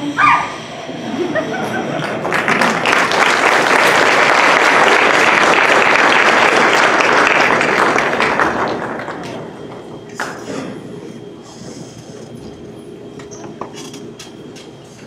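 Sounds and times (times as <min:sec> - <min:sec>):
audience applauding: 0:01.9 - 0:10.5.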